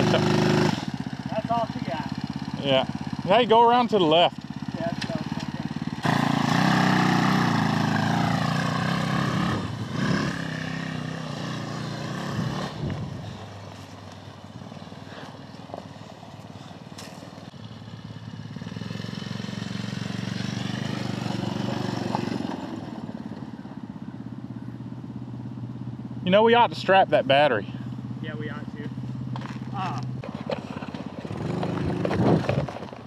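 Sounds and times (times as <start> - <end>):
go-kart engine running: 0.0 - 33.0.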